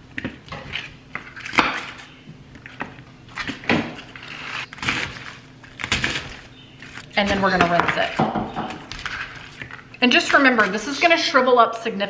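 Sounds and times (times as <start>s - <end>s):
cabbage crunching under knife: 3.3s - 8.1s.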